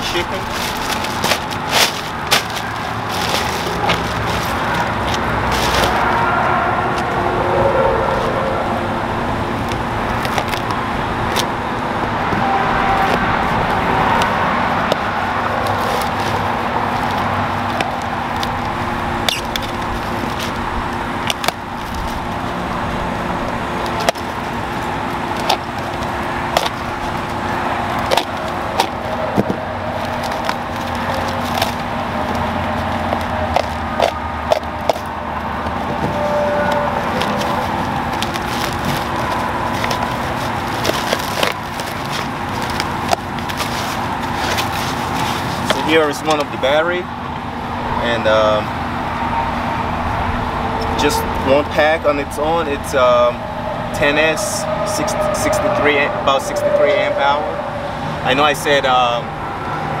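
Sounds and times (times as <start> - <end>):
packaging crackling: 0.0 - 6.3, 14.1 - 45.8
steady mechanical hum: 0.0 - 60.0.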